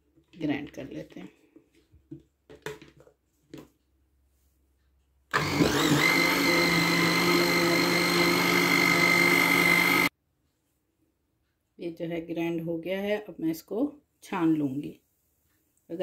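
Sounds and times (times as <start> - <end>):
blender motor whining: 5.3 - 10.1.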